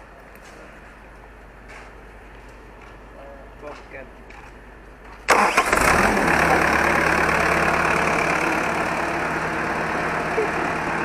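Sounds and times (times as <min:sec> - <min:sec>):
diesel engine cranking and idling: 0:04.8 - 0:11.0.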